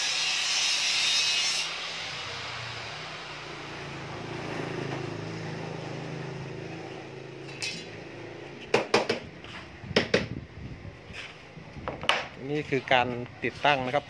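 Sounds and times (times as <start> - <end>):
sharp metallic clanks: 7.4 - 8.0.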